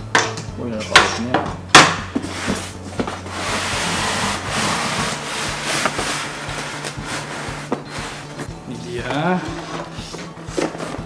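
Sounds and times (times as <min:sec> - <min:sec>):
foam scraping against cardboard: 0:02.2 - 0:08.5.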